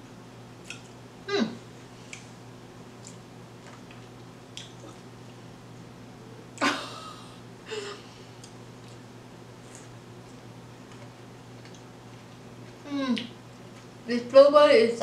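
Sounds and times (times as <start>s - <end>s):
person chewing: 3.0s - 5.1s, 8.4s - 13.9s.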